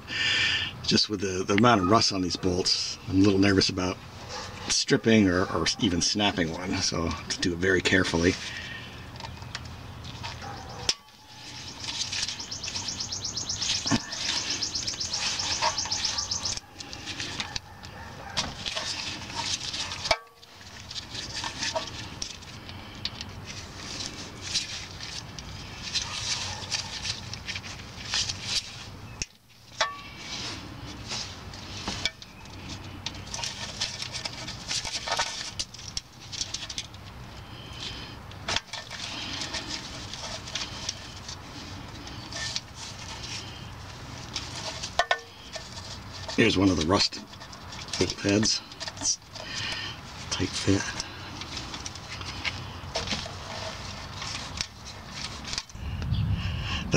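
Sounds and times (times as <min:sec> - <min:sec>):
small metallic knocks: 0:44.8 - 0:46.3.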